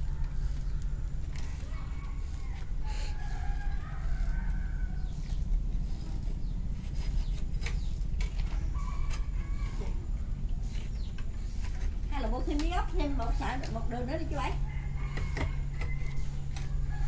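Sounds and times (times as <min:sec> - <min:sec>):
rooster crowing: 0:00.0 - 0:05.4, 0:08.7 - 0:10.1, 0:14.4 - 0:17.0.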